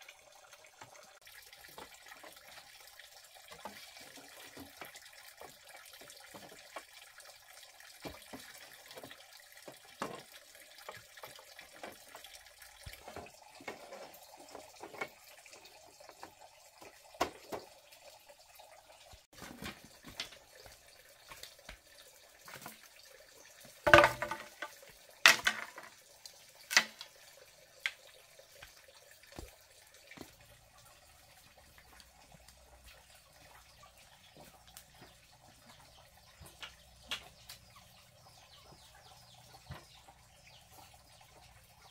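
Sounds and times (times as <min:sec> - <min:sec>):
bamboo poles knocking and clattering: 0:03.5 - 0:07.0, 0:08.0 - 0:15.4, 0:16.0 - 0:17.8, 0:19.3 - 0:21.8, 0:22.4 - 0:22.8, 0:23.7 - 0:26.0, 0:26.6 - 0:27.2, 0:34.3 - 0:37.7.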